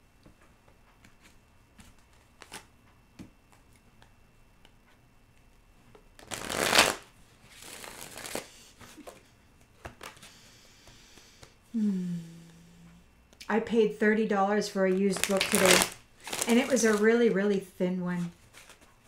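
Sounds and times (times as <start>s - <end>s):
cards being shuffled: 1.0s - 4.1s, 5.9s - 11.0s, 14.9s - 17.6s, 18.2s - 18.9s.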